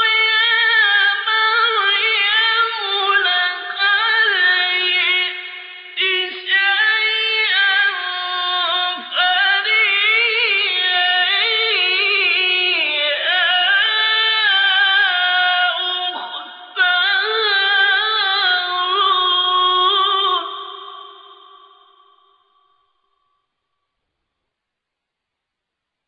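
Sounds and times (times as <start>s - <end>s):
man reciting melodically: 0.0s - 21.6s.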